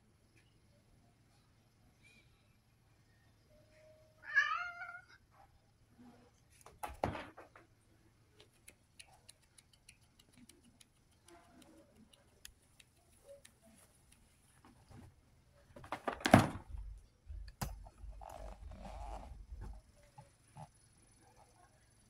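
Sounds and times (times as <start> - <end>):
cat meowing: 4.2 - 5.2.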